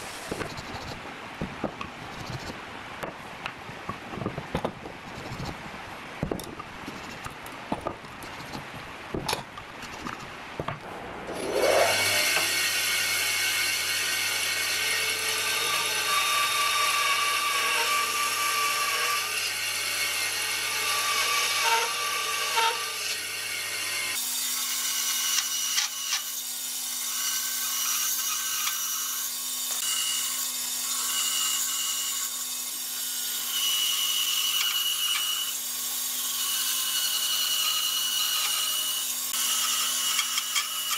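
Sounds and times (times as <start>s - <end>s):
wood being handled: 6.2s - 11.8s
band saw cutting wood: 9.9s - 40.9s.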